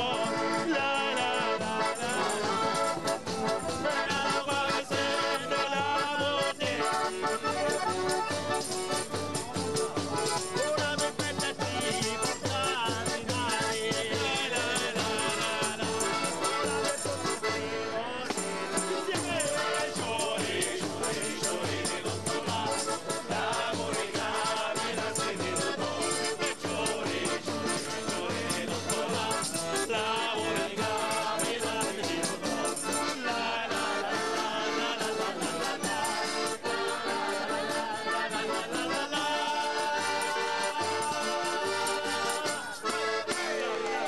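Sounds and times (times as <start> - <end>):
accordion: 0.0 - 44.0
acoustic guitar: 0.0 - 44.0
voices singing: 0.0 - 44.0
tambourines jingling: 1.0 - 3.6, 18.6 - 34.0, 34.8 - 43.4.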